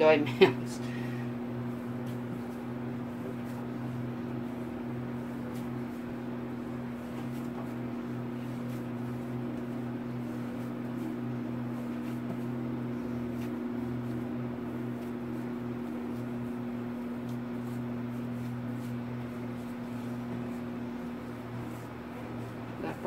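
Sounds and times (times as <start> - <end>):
hands kneading dough: 0.0 - 23.0
machine hum: 0.0 - 23.0.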